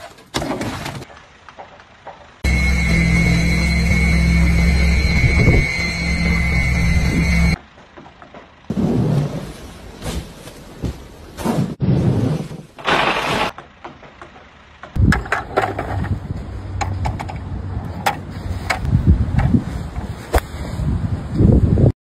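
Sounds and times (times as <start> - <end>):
machine motor hum: 2.4 - 7.6
roof snow sliding and crashing: 8.7 - 13.6.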